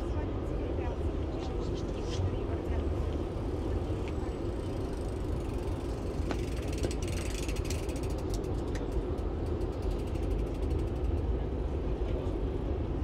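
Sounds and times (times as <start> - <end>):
bicycle freewheel ticking: 4.4 - 11.2.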